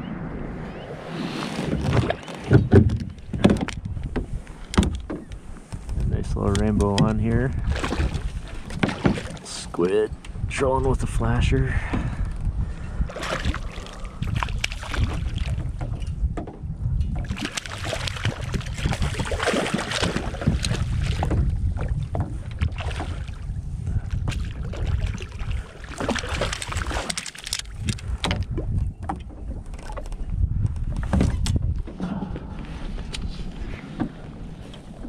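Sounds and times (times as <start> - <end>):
wind buffeting microphone: 0.0 - 35.0
fish splashing water: 7.6 - 9.5, 13.1 - 15.8, 17.2 - 23.5, 24.2 - 27.8.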